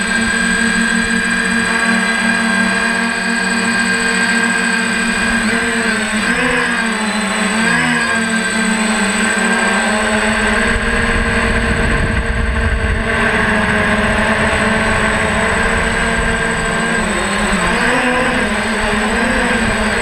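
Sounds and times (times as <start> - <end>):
drone propellers whirring: 0.0 - 20.0
deep rumble: 10.4 - 17.7.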